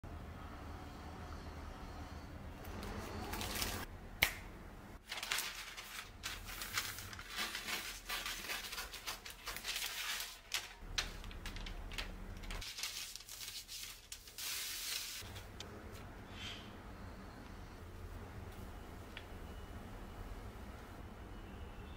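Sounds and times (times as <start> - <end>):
parchment paper crinkling: 2.8 - 3.9, 5.0 - 15.6.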